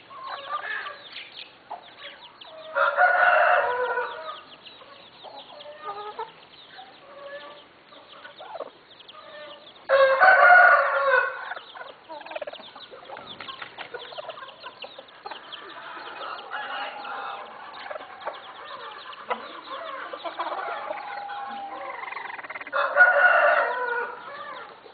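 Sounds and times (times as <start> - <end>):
chicken clucks and low calls: 0.0 - 24.9
rooster crowing: 2.7 - 4.4, 9.9 - 11.6, 15.8 - 18.4, 19.8 - 24.7.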